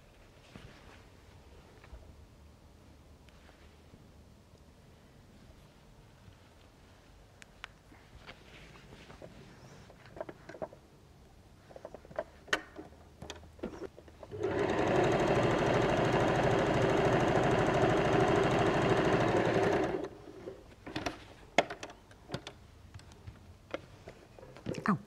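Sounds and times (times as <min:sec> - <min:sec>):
sewing machine stitching: 0:14.2 - 0:21.0.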